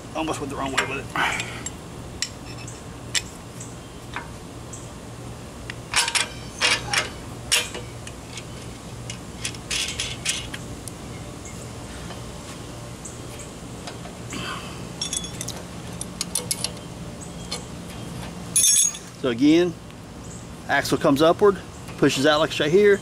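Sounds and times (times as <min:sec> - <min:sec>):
metal plates clinking: 0:05.9 - 0:10.5, 0:15.0 - 0:16.8, 0:18.5 - 0:19.1.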